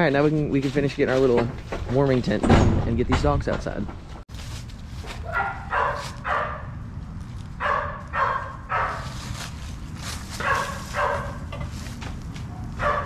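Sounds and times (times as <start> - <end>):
dogs barking: 5.2 - 6.8, 7.6 - 9.2, 10.4 - 11.6, 12.5 - 13.0.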